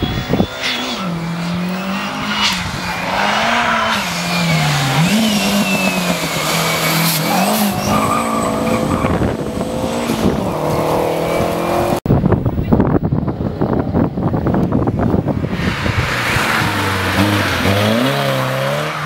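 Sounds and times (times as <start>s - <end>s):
tyre squeal: 0.0s - 9.4s
car engine at high revs: 0.0s - 12.0s, 14.3s - 19.0s.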